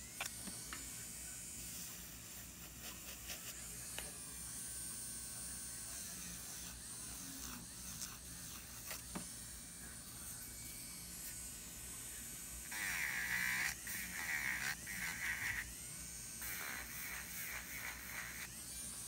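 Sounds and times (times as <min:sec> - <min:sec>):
electric nail drill whirring: 0:03.9 - 0:11.6, 0:12.6 - 0:19.0.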